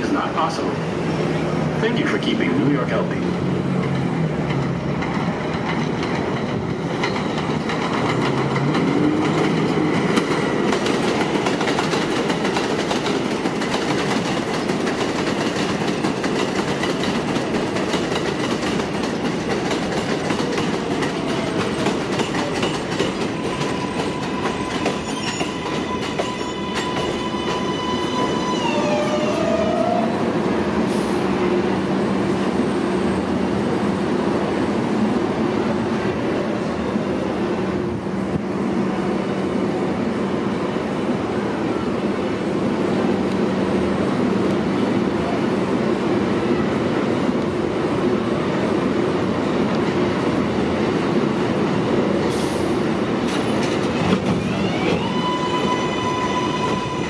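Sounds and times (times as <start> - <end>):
train wheels clattering over rails: 3.6 - 28.3, 49.2 - 55.1.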